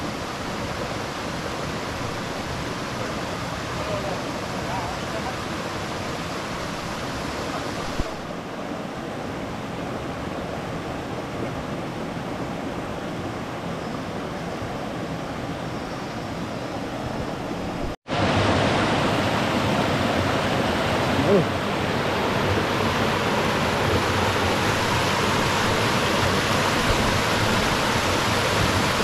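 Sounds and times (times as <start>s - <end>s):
steady rushing noise: 11.3s - 29.0s.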